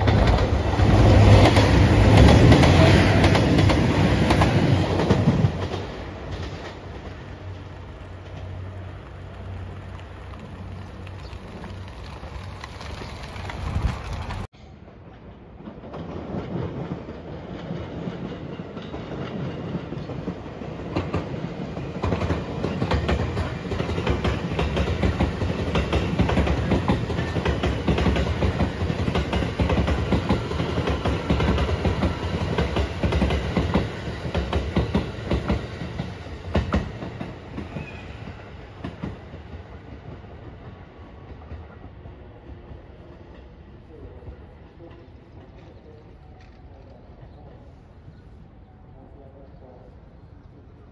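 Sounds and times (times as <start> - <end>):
train wheels clattering over rails: 0.0 - 7.5, 15.1 - 43.7.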